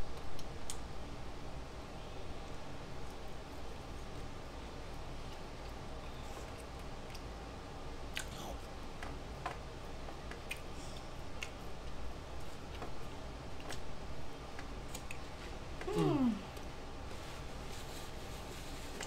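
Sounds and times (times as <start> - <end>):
low steady hum: 0.0 - 19.0
wet chewing clicks and lip smacks: 6.5 - 7.3, 8.1 - 8.4, 10.3 - 10.8.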